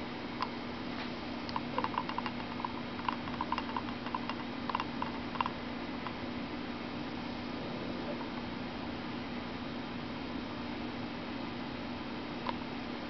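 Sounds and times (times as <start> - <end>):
steady low hum: 0.0 - 13.0
tree frog clicking call: 1.5 - 6.2.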